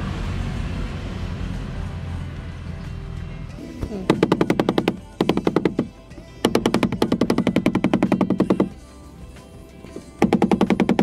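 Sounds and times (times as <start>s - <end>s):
music with pulsing staccato beat: 3.6s - 11.0s.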